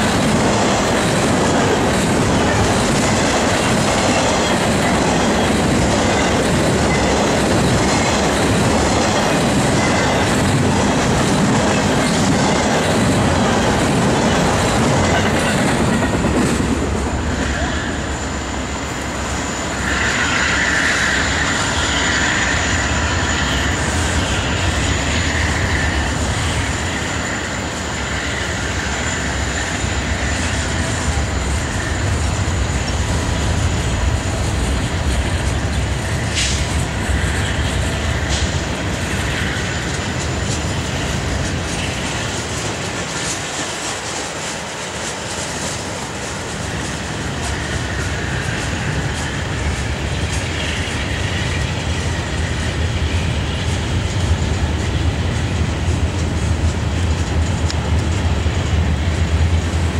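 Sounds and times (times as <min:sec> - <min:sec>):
train wheels rumbling and clacking: 0:00.0 - 0:59.9
high wheel squeal: 0:17.2 - 0:33.4.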